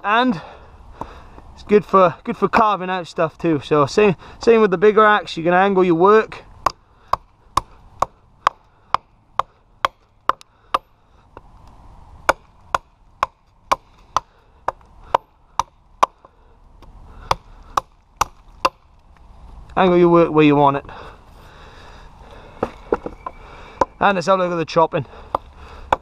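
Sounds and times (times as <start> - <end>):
tomahawk chopping wood: 6.6 - 11.5, 12.2 - 19.0, 25.2 - 26.0.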